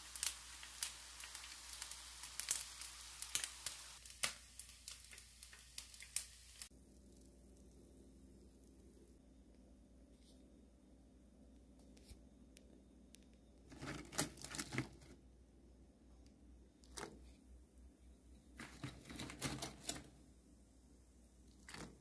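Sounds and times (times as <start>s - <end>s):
chicken crackling in frying oil: 0.0s - 7.7s, 21.6s - 22.0s.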